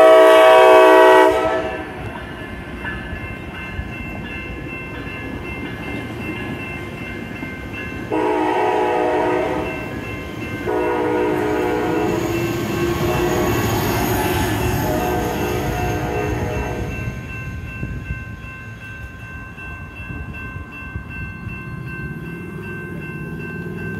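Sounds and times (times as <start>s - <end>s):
train horn blasts: 0.0s - 2.1s, 8.1s - 9.9s, 10.6s - 17.1s
crossing bells dinging: 0.0s - 23.9s
train rumbling: 0.0s - 23.9s.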